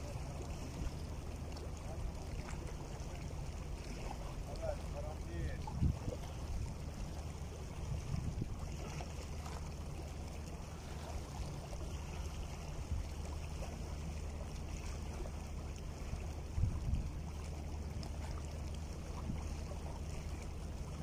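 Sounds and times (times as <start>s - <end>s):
waves lapping against rocks: 0.0s - 21.0s
wind rumble on microphone: 3.8s - 9.6s, 14.7s - 21.0s.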